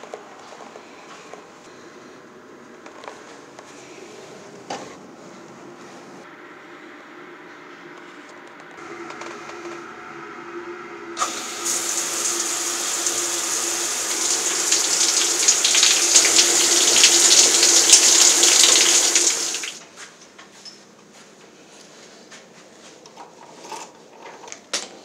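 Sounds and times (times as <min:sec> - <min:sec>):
shower head spraying water: 0:11.2 - 0:19.8.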